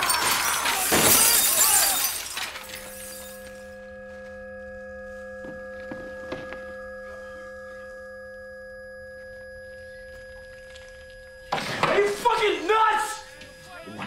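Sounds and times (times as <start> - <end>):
glass and debris showering down: 0.0 - 3.4
ringing held tones: 1.2 - 14.0.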